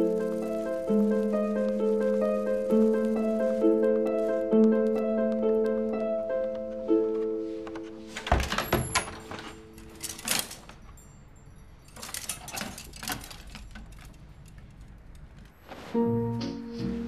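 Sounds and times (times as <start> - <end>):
light clicks and jingles: 8.4 - 15.6
fabric rustling: 11.9 - 16.1.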